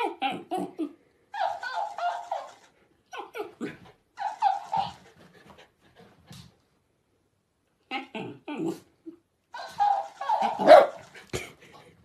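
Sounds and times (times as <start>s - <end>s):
dog yipping and whining: 0.0s - 5.0s, 9.6s - 11.1s
toy squeaky voice replays: 9.6s - 10.7s.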